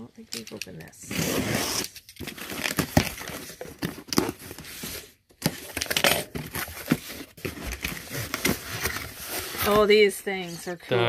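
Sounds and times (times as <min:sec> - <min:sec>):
packaging crinkling and rustling: 0:01.8 - 0:10.0.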